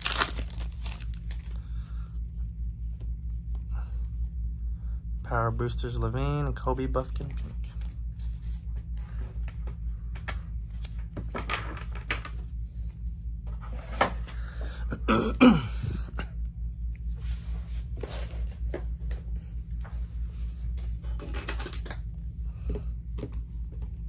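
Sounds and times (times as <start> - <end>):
cards and boxes rustling: 0.0 - 1.6
low hum: 0.0 - 24.0.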